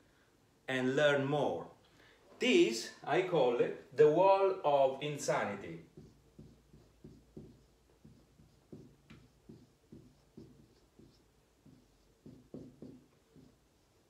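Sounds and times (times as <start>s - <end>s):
marker writing on whiteboard: 5.7s - 14.0s.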